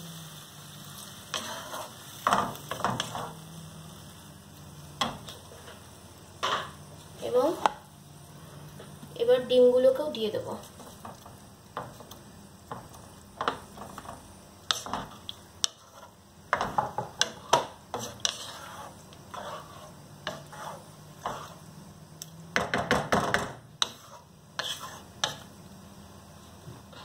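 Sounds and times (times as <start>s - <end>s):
metal spatula scraping pan: 1.3s - 3.4s, 14.7s - 21.7s, 23.8s - 25.5s
wooden spatula tapping pan: 10.8s - 15.8s, 16.5s - 18.1s, 22.5s - 24.0s.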